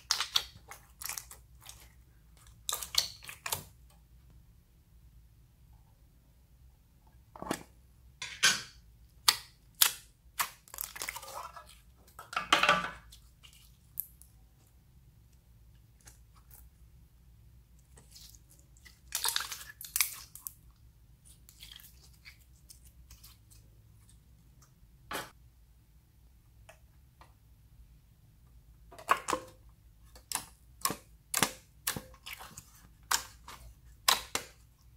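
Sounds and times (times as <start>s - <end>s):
slime squelching: 0.0s - 4.1s, 9.1s - 12.3s, 13.0s - 24.6s, 29.0s - 34.9s.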